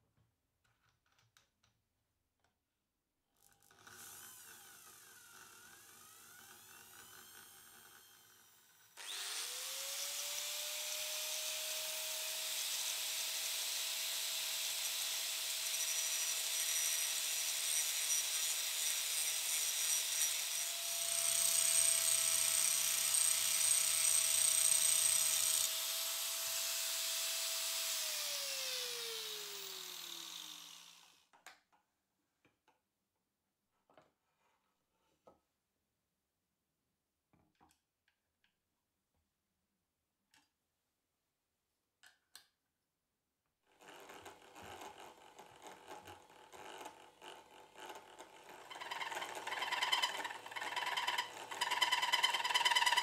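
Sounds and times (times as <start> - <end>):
angle grinder grinding steel: 14.8 - 31.2, 48.4 - 53.0.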